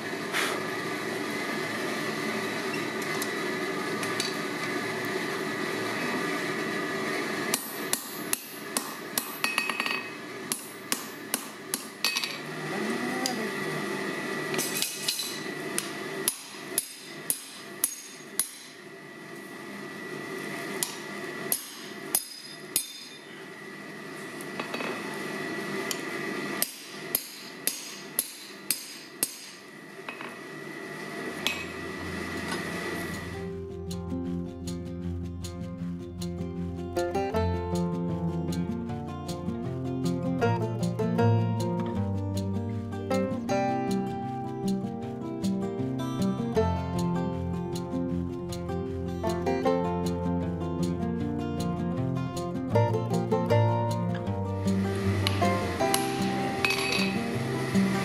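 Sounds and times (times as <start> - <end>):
steady hum: 0.0 - 58.0
hammer striking metal punch: 7.5 - 12.4, 14.6 - 18.7, 20.8 - 23.2, 26.6 - 30.3, 55.2 - 57.2.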